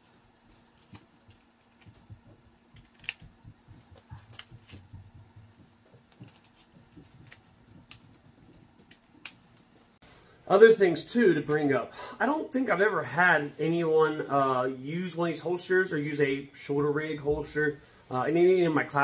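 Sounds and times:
hands rustling clothing: 0:00.0 - 0:10.0.

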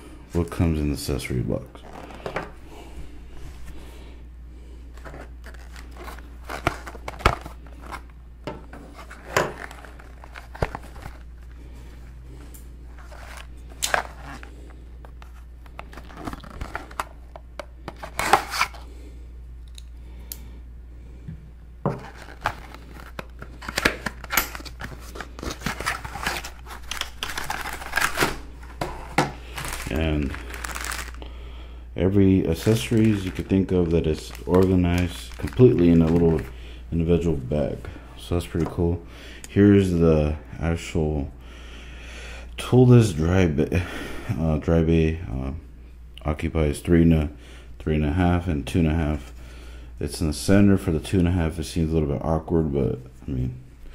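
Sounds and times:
low steady hum: 0:00.0 - 0:53.9
plastic bags rustling and crinkling: 0:04.9 - 0:08.1, 0:08.7 - 0:17.2, 0:21.9 - 0:31.3, 0:32.1 - 0:37.8.

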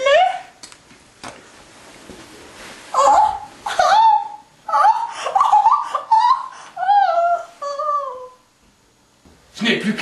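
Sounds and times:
person laughing high-pitched: 0:03.0 - 0:08.4.

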